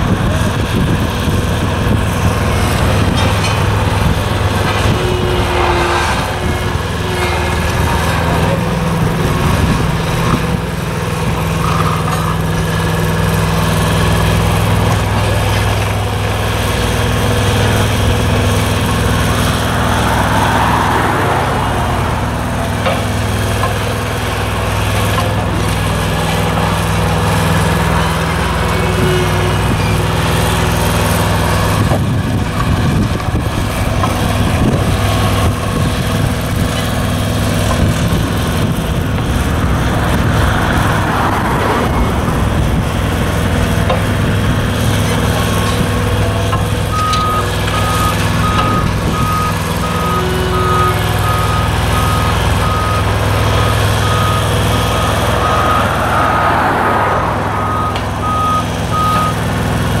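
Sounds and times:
diesel engines running: 0.0s - 60.0s.

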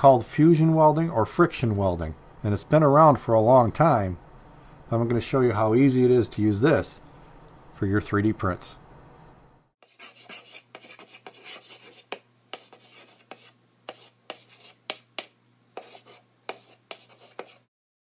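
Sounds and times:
chalk scratching on blackboard: 9.8s - 17.7s
chalk tapping on board: 9.8s - 17.7s.

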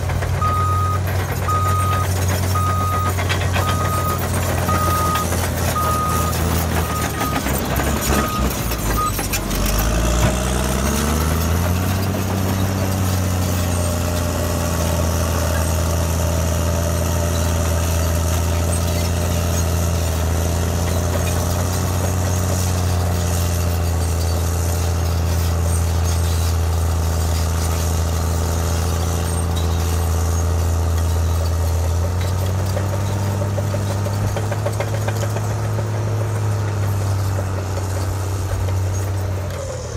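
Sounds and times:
bulldozer diesel engine revving: 0.0s - 39.9s
backup alarm beeping: 0.4s - 9.2s.

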